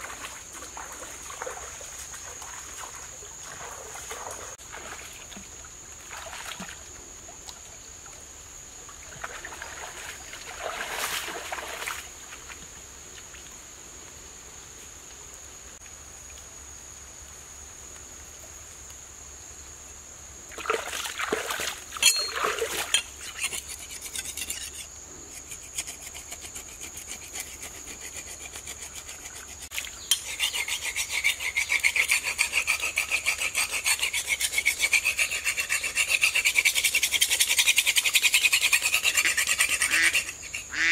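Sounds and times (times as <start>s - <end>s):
splashes and knocks: 0.0s - 7.6s, 9.0s - 12.7s, 20.5s - 23.0s
water sloshing from wading: 0.0s - 8.2s, 8.9s - 12.6s, 20.5s - 23.2s
thin steady high tone: 22.0s - 22.6s.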